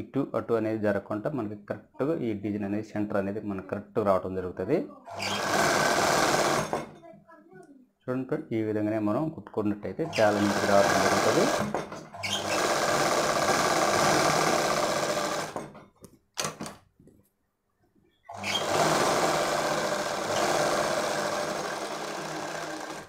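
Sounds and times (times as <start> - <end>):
sewing machine stitching: 5.1 - 6.9, 10.0 - 15.8, 18.3 - 23.0.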